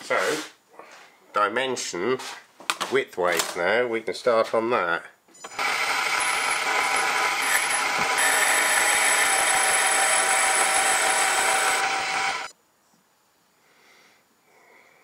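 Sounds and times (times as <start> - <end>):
metal lathe hissing and whining: 5.5 - 12.5.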